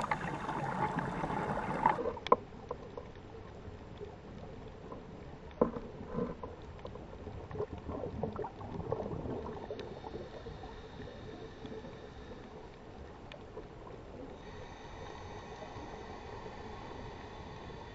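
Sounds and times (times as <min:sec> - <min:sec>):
boat motor whine underwater: 0:00.0 - 0:02.0
underwater bubbling and gurgling: 0:00.0 - 0:17.9.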